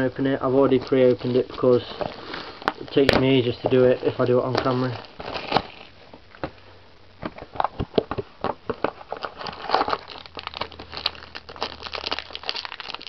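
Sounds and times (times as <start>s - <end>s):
foil wrapper crinkling: 0.6s - 5.9s, 8.9s - 13.0s.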